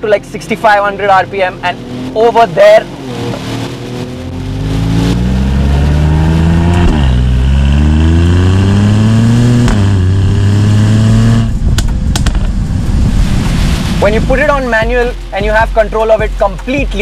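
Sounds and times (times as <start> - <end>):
car engine accelerating: 0.0 - 15.3
exhaust pops: 2.5 - 15.6.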